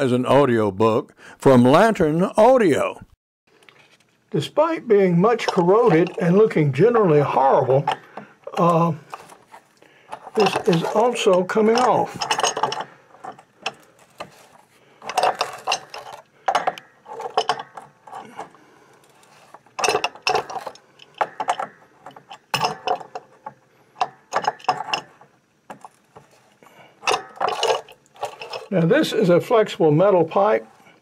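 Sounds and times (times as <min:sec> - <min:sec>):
wrench clanking on metal pipe: 0:05.2 - 0:09.4, 0:10.1 - 0:28.8.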